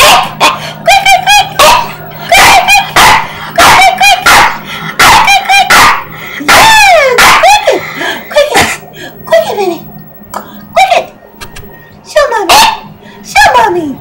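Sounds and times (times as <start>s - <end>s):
puppy yipping and barking: 0.0s - 7.8s.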